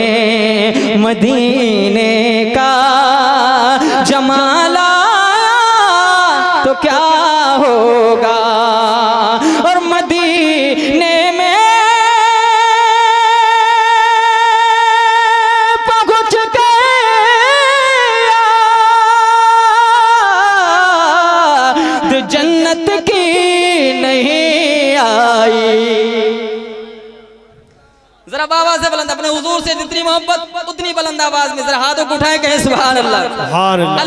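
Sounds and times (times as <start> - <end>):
male voice singing unaccompanied: 0.0 - 27.1.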